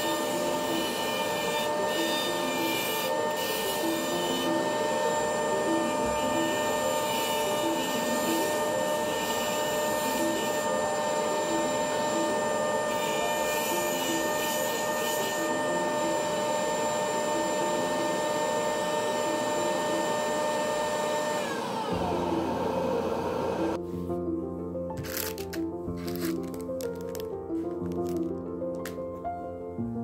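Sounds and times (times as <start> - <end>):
router whining: 0.0 - 23.8
background music: 0.0 - 30.0.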